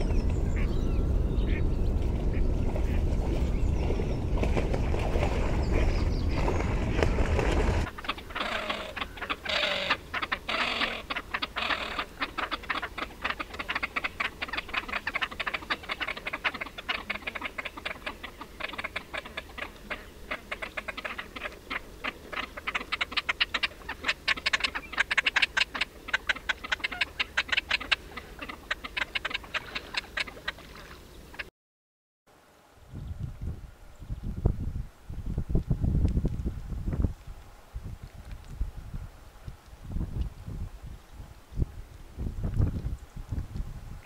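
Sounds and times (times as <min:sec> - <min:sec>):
birds splashing in water: 0:00.0 - 0:31.5.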